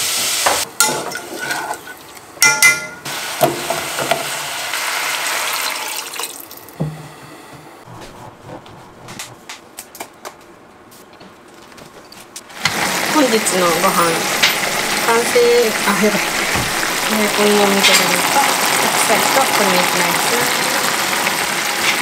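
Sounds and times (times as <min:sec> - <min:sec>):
steady cooking hiss: 0:00.0 - 0:08.0, 0:12.5 - 0:22.0
clinks and knocks of dishes: 0:02.4 - 0:04.2.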